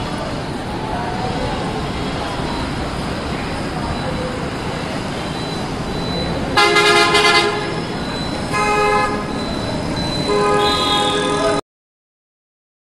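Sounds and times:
traffic noise: 0.0s - 11.6s
bus horn blasts: 6.6s - 7.8s, 8.5s - 9.3s, 10.3s - 11.6s.

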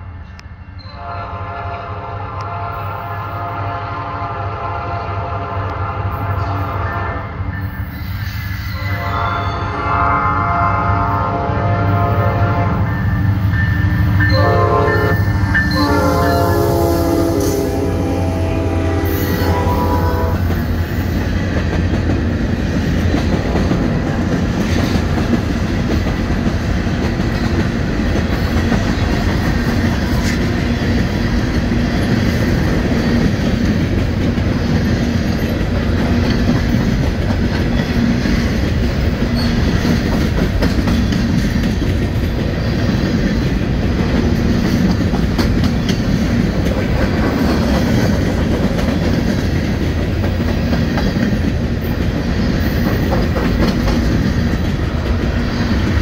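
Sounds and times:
train wheels rumbling on rail: 0.0s - 56.0s
clickety-clack over rail joints: 20.2s - 56.0s.

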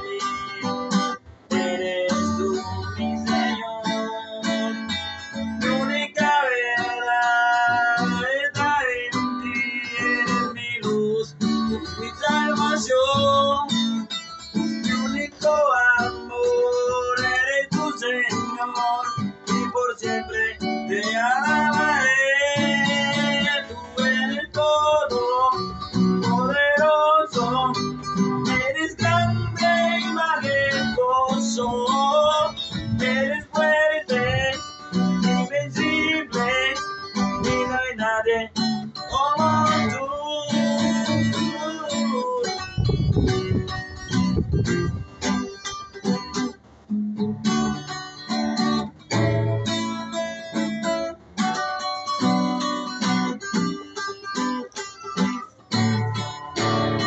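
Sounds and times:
man singing: 0.0s - 43.7s
classical guitar strumming: 0.0s - 57.0s.

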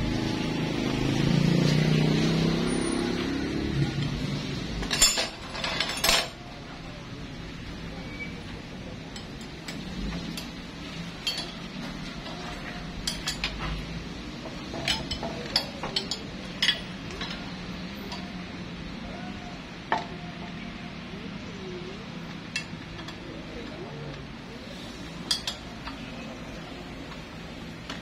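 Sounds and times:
metal wrenches clinking: 4.8s - 6.4s, 9.1s - 13.9s, 14.5s - 18.4s, 22.5s - 23.3s, 25.2s - 26.1s.

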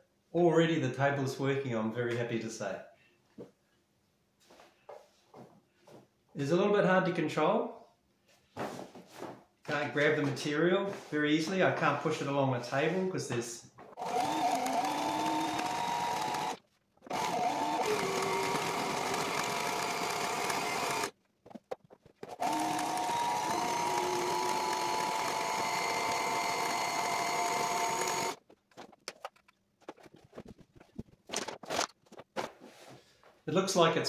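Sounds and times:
sewing machine stitching: 14.0s - 21.1s, 22.3s - 28.4s.

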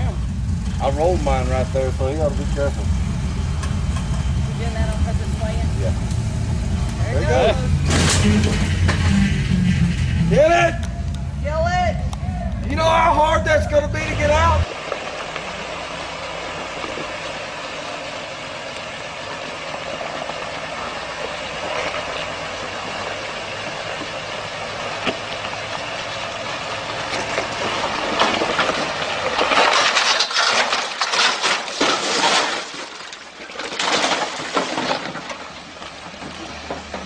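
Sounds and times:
truck engine running: 0.0s - 31.0s
truck crashing and clattering: 7.7s - 10.6s, 25.0s - 37.0s.

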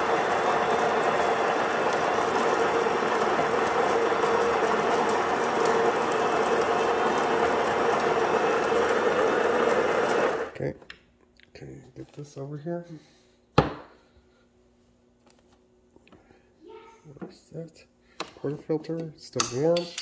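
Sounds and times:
coffee grinder whirring: 0.0s - 10.6s.

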